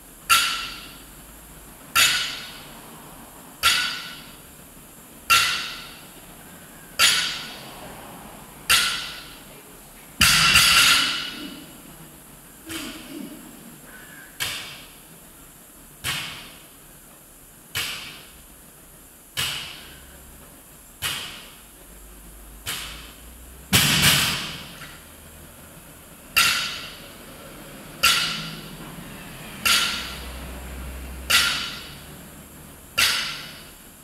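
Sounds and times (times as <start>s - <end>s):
barbell clanking: 28.0s - 28.7s.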